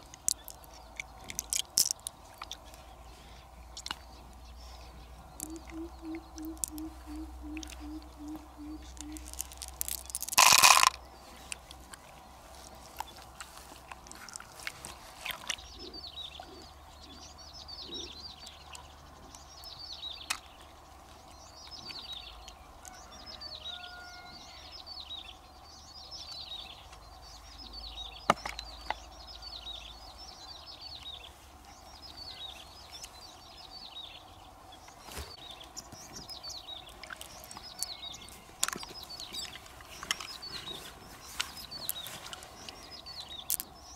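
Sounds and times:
pearls clattering into glass jar: 0:09.2 - 0:11.0.

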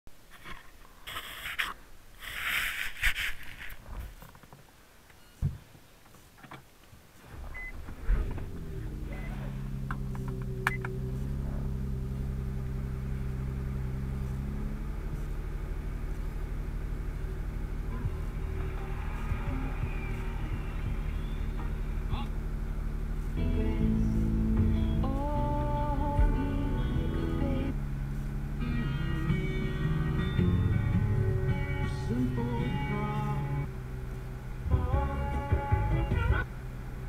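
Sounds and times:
rustling in a seat: 0:00.3 - 0:04.7, 0:05.6 - 0:10.3
car engine idling: 0:03.9 - 0:37.0.

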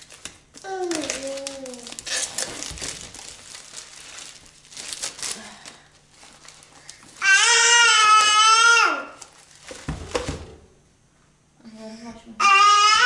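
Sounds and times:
wrapping crinkling and tearing: 0:00.0 - 0:10.0
baby yelling: 0:07.2 - 0:09.2, 0:12.4 - 0:13.0.

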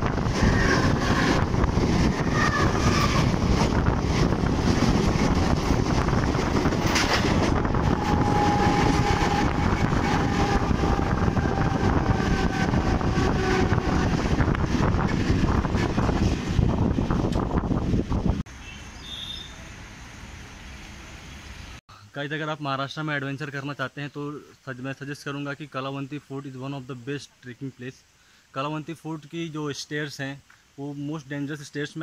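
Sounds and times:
train wheels rumbling: 0:00.0 - 0:18.4
wind buffeting microphone: 0:00.0 - 0:18.5.

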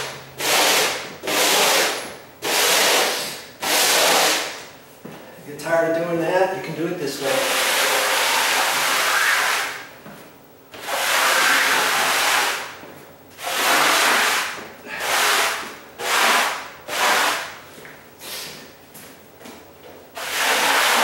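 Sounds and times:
dustpan scraping across floor: 0:10.8 - 0:12.7, 0:13.4 - 0:17.5, 0:20.2 - 0:21.0.

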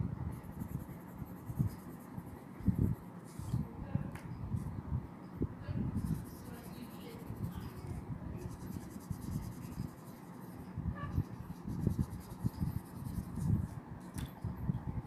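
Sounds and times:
pencil scratching on paper: 0:00.3 - 0:03.6, 0:06.0 - 0:13.8.

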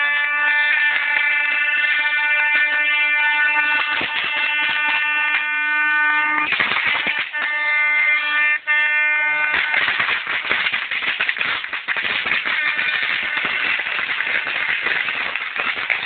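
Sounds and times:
horn blasts: 0:00.0 - 0:09.8, 0:12.5 - 0:13.6.

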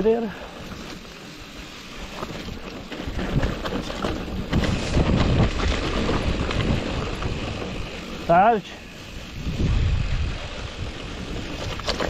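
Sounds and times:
mountain bike rattling over rocks: 0:00.0 - 0:12.0
wind buffeting microphone: 0:02.1 - 0:08.3, 0:08.9 - 0:12.0.

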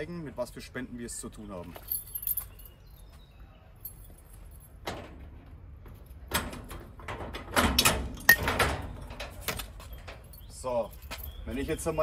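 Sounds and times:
keys jangling: 0:01.7 - 0:03.2, 0:03.8 - 0:04.8, 0:09.8 - 0:11.5.

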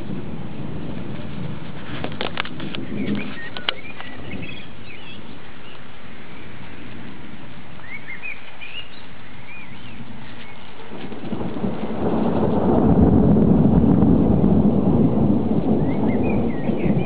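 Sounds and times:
low thunder rumble: 0:00.0 - 0:17.0
rain hissing: 0:00.0 - 0:17.0
bird chirping: 0:02.8 - 0:06.6, 0:07.8 - 0:10.9, 0:15.8 - 0:17.0.

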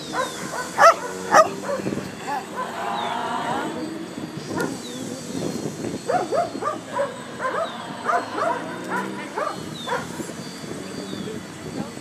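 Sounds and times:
choir voices whooping yelps: 0:00.1 - 0:04.2, 0:06.6 - 0:09.4.

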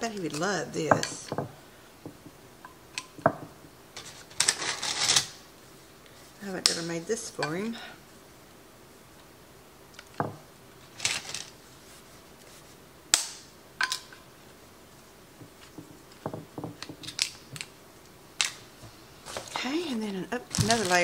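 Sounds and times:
sharp cracks and clicks: 0:13.1 - 0:14.2.

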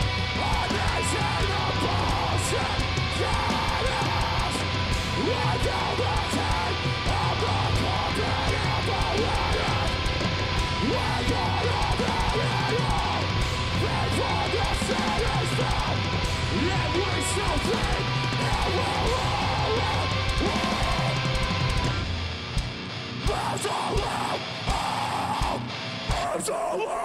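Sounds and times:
drum kit: 0:00.0 - 0:26.4
distorted electric guitars: 0:00.0 - 0:27.0.

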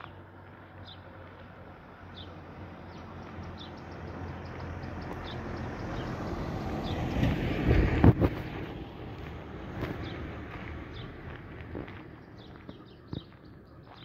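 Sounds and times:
van engine and tyre noise: 0:00.0 - 0:14.0
bird chirping: 0:02.2 - 0:06.2, 0:12.1 - 0:14.0.

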